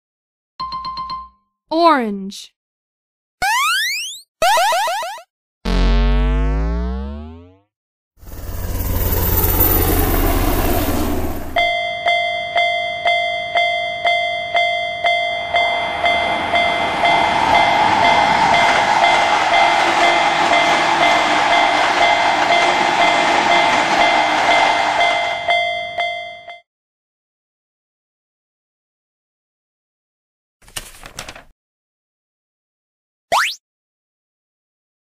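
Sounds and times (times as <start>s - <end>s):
helicopter whir: 8.2s - 11.7s, 15.3s - 25.5s
passing train running noise: 8.2s - 11.7s, 14.8s - 26.1s
level-crossing warning bell ringing: 11.6s - 26.6s.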